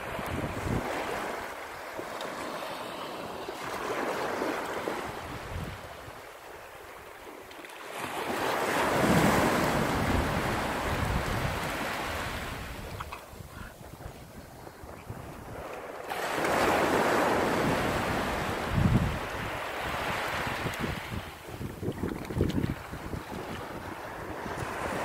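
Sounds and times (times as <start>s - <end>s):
wind buffeting microphone: 0.0s - 1.6s, 4.5s - 6.3s, 8.7s - 25.0s
waves breaking on beach: 0.0s - 25.0s.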